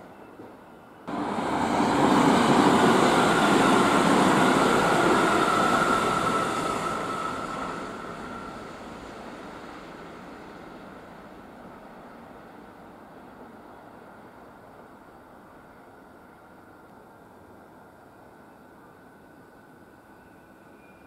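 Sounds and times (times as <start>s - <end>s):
train wheels rumbling on rail: 0.0s - 15.8s.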